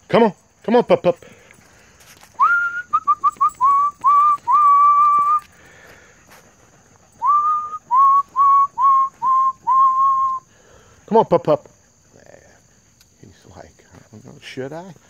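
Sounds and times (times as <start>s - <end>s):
person whistling to call dogs: 2.3s - 5.5s, 7.2s - 10.5s.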